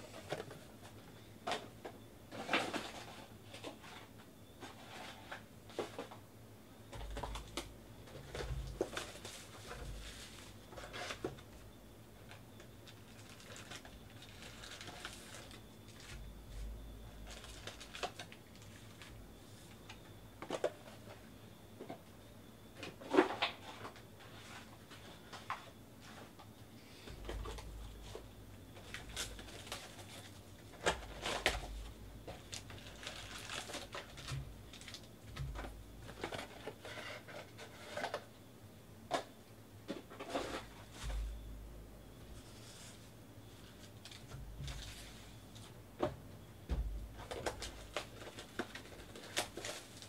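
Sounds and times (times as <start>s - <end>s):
cardboard box and foil packs handled: 0.0s - 6.2s, 6.8s - 11.5s, 12.2s - 21.4s, 27.1s - 38.3s, 39.9s - 45.8s, 47.1s - 50.0s.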